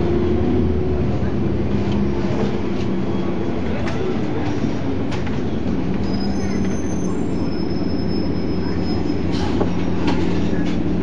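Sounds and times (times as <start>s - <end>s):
bus engine and road rumble: 0.0s - 11.0s.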